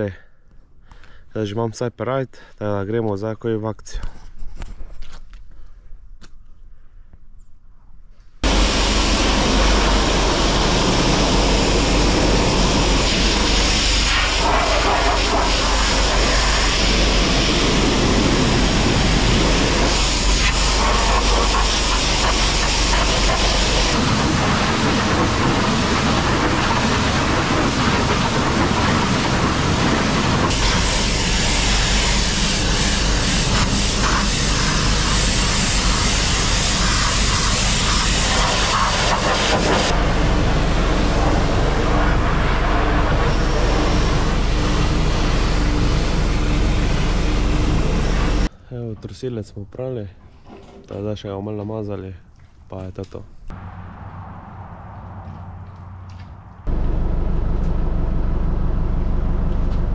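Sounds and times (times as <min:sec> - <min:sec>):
low motor hum: 0:08.4 - 0:48.5, 0:53.5 - 0:59.9
pressure washer spray hissing: 0:08.4 - 0:48.5.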